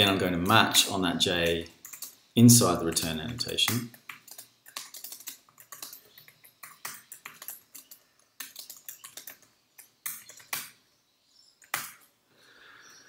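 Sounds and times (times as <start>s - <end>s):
typing on computer keyboard: 1.7s - 2.2s, 2.8s - 10.8s, 11.6s - 12.0s.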